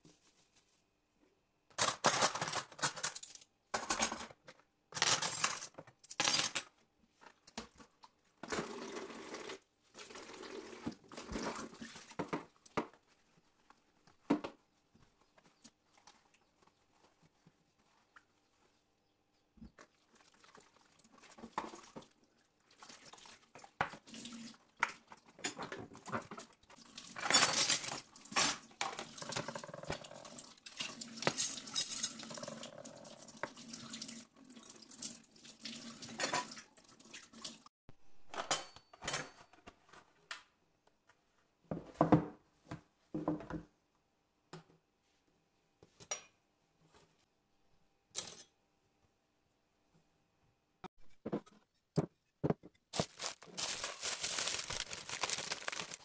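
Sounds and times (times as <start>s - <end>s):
metal cutlery clattering: 1.8s - 4.4s, 27.2s - 32.6s, 38.3s - 39.7s, 48.2s - 48.5s
water running from tap: 8.6s - 12.0s, 24.0s - 24.6s, 30.0s - 37.7s.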